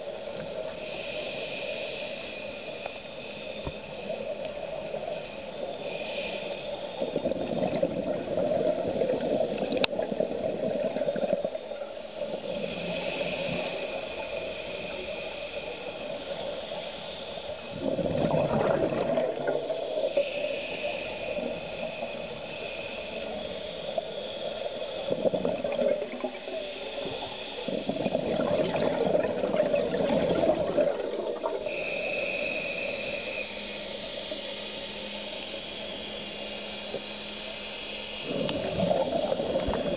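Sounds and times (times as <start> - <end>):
bubbling exhalation: 17.8 - 19.6, 27.9 - 31.6
regulator hissing intake: 19.7 - 28.9, 31.6 - 39.9.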